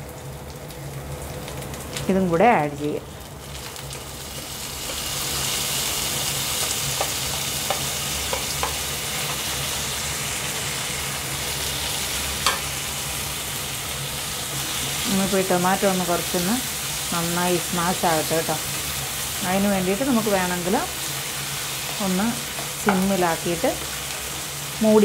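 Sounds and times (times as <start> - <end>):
vegetables sizzling in hot oil: 0.0 - 25.0
wooden spatula tapping: 22.6 - 23.1.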